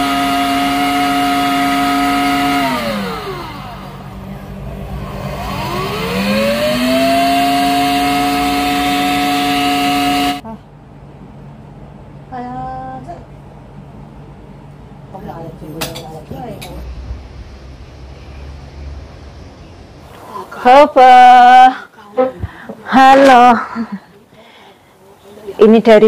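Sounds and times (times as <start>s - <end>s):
blender motor running: 0.0s - 10.4s.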